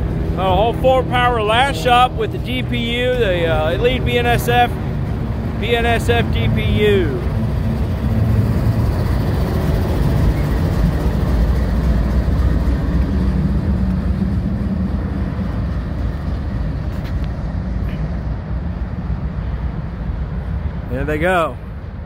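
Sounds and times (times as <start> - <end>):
diesel locomotive engine hum: 0.0 - 22.0
train wheels rolling: 1.3 - 17.8.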